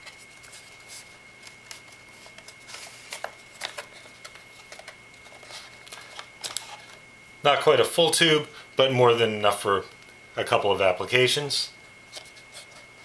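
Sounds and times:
clicks and rustles of handling: 0.0s - 7.0s
faint high whine: 0.0s - 13.0s.

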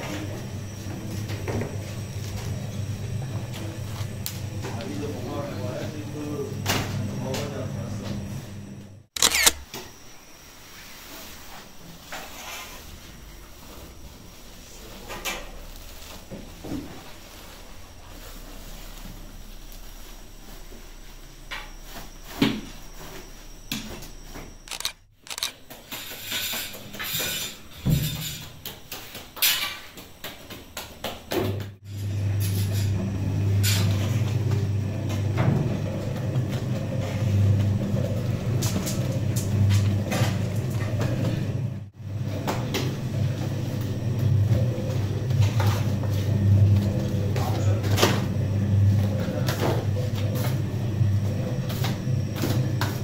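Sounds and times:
dough mixer humming: 0.0s - 9.1s, 30.3s - 53.0s
flour rustling: 12.9s - 22.2s.

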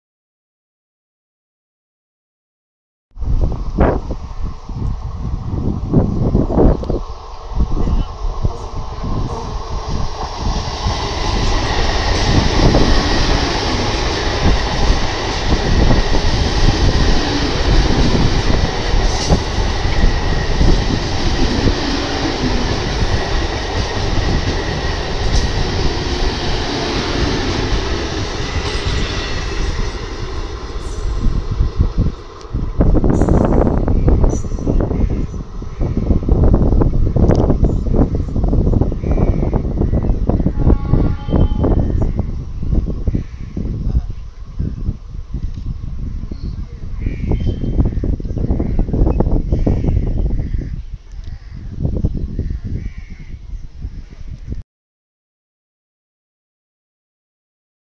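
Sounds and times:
train wheels rushing on rail: 3.2s - 51.3s
wind buffeting microphone: 3.2s - 54.6s
thin high whine: 11.4s - 35.5s.

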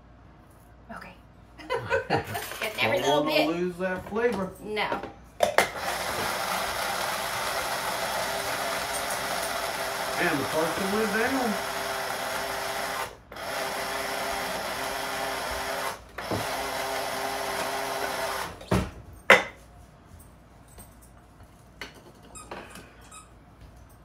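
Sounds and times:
electric spice grinder running: 5.7s - 18.6s.

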